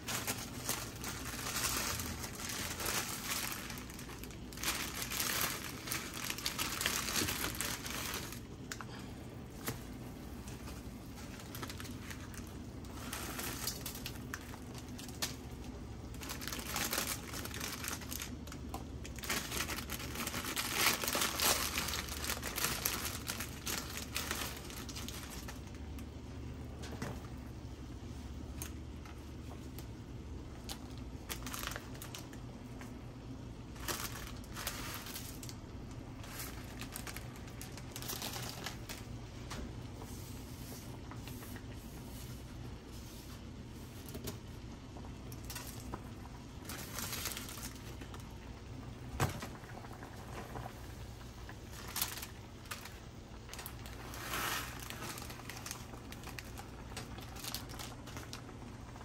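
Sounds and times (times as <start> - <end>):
plastic tearing: 0.0 - 9.0, 11.3 - 25.8, 33.7 - 39.6, 51.6 - 58.6
plastic packaging crinkling: 0.0 - 59.0.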